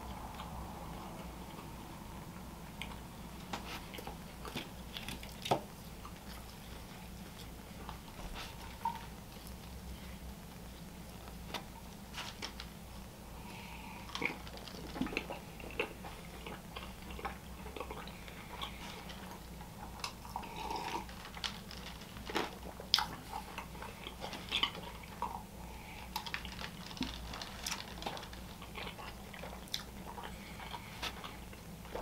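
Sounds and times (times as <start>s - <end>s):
low hum: 0.0s - 32.0s
person chewing: 13.4s - 32.0s.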